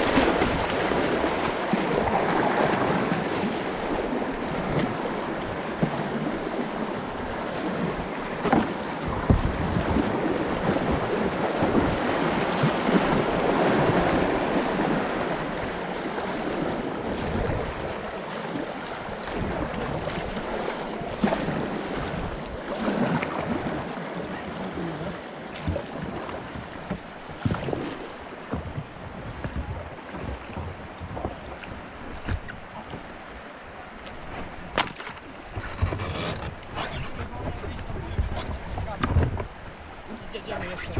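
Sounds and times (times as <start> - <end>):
whitewater rushing: 0.0 - 28.6
paddle splashes: 0.0 - 40.9.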